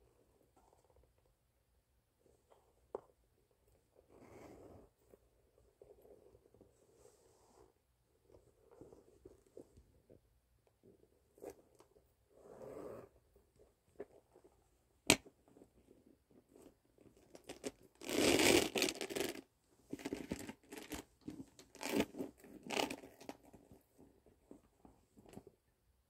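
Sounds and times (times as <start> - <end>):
bag rustling and scraping: 18.0 - 23.3.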